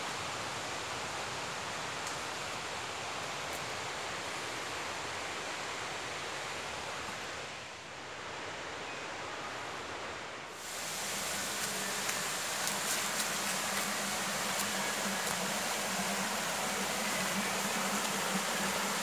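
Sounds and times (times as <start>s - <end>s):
river water rushing over falls: 10.5s - 19.0s.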